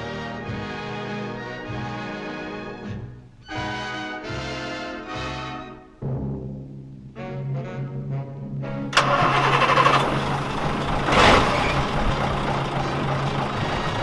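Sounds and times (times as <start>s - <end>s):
music: 0.0s - 10.2s
diesel truck engine starting: 8.7s - 14.0s.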